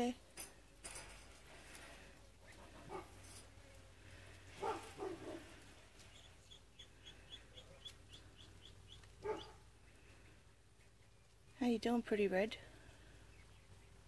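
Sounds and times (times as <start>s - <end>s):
small bird chirping: 4.6s - 11.6s, 12.8s - 14.0s.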